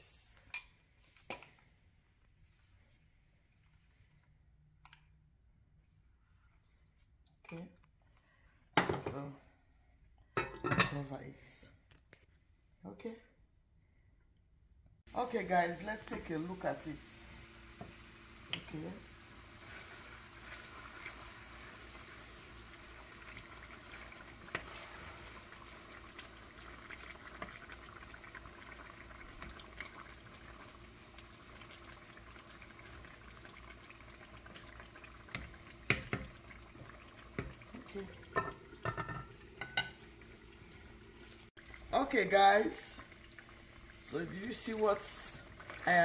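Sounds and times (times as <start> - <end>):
vegetables sizzling in oil: 15.4 - 46.0.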